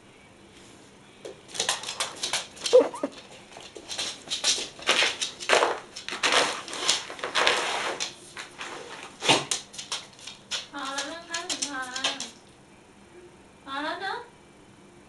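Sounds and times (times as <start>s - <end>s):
plastic bag crinkling: 1.5s - 12.4s.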